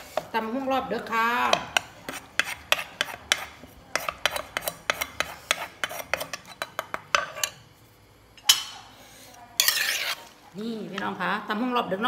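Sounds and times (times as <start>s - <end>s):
metal spoon scraping bowl: 1.0s - 7.6s, 9.6s - 10.3s.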